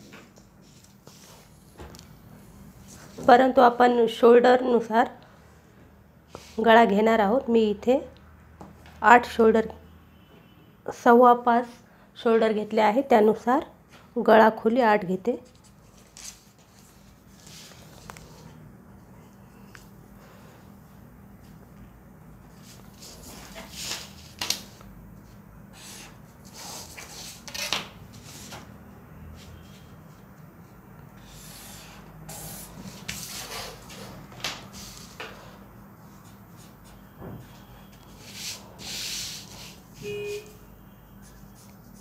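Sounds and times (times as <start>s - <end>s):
paper rustling: 15.4s - 18.5s.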